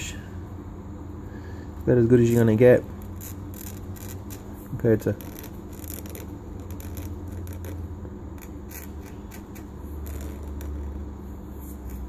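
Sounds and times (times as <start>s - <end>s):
steady low hum: 0.0s - 12.0s
fingers scratching steel bar: 3.0s - 12.0s.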